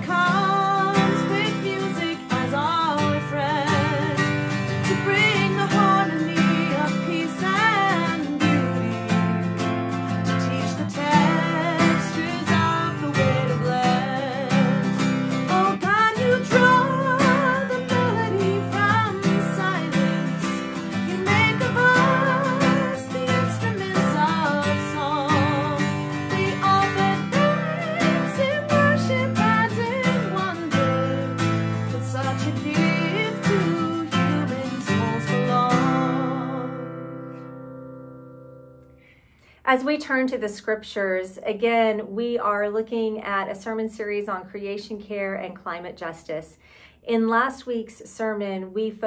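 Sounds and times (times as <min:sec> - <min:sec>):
strummed acoustic guitar: 0:00.0 - 0:39.0.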